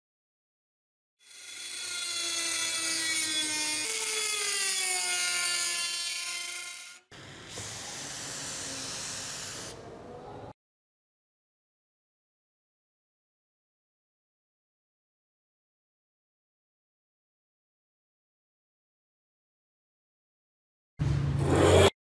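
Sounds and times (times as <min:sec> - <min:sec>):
rotary tool grinding metal: 0:01.2 - 0:09.8
rough scraping sound: 0:21.3 - 0:22.0.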